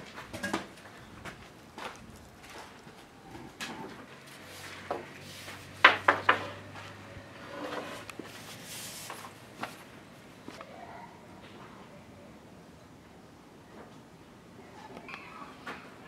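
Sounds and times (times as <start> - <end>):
wood rubbing: 0.7 - 9.8
wooden knocks: 5.8 - 6.6.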